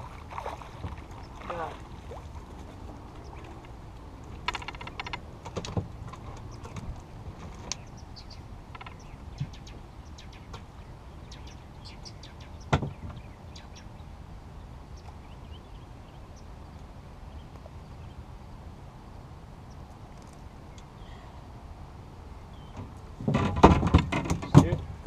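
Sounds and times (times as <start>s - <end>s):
fishing gear clicking and knocking: 4.3s - 7.8s, 8.7s - 9.0s.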